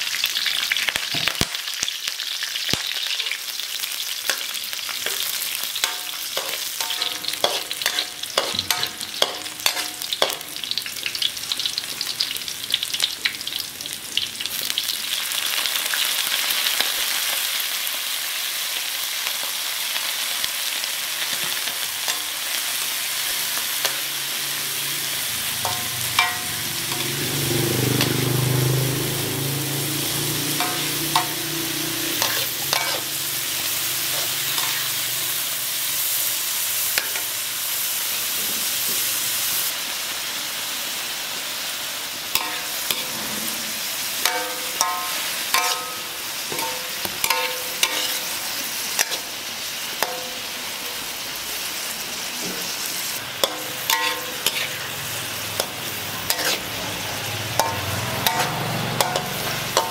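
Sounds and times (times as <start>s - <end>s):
food sizzling in hot oil: 0.0s - 59.9s
metal spatula scraping wok: 4.3s - 10.8s, 21.3s - 36.2s, 42.3s - 50.6s, 52.4s - 59.9s.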